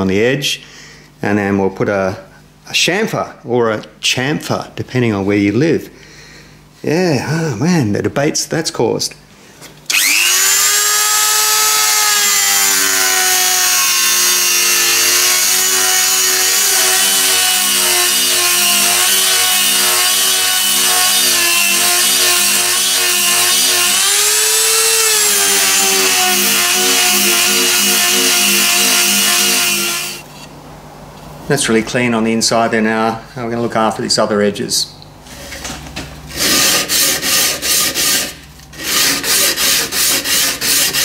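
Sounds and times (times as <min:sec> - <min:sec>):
rotary tool whining: 0:09.9 - 0:30.5.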